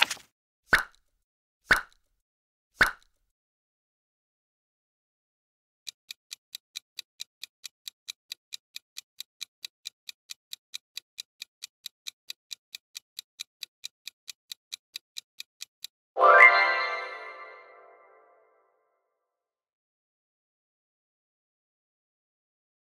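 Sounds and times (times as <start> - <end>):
countdown timer ticking: 5.9 - 18.2
bright chime: 16.2 - 18.2.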